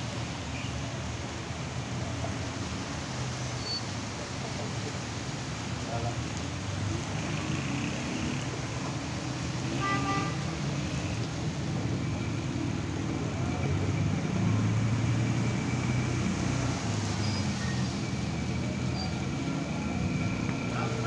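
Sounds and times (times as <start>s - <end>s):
cars driving through water: 0.0s - 21.0s
car horn toot: 9.8s - 10.4s.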